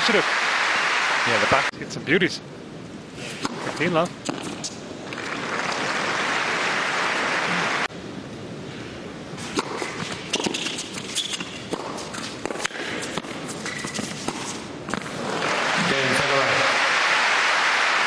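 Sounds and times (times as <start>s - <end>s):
tennis ball bounced and struck: 3.4s - 6.0s, 9.4s - 15.2s
crowd applauding: 5.3s - 7.9s, 15.3s - 18.0s.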